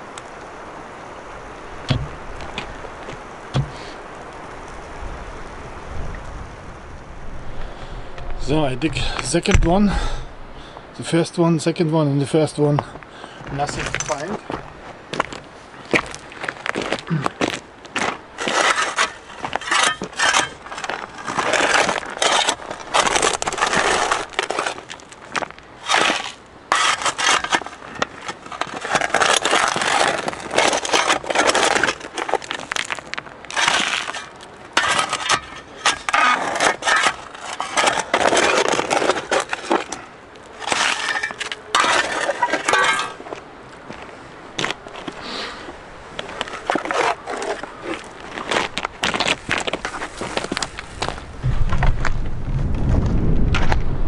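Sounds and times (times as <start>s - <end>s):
pebbles clattering: 18.0s - 43.4s
shovel scraping into gravel: 18.4s - 43.3s, 46.5s - 50.6s.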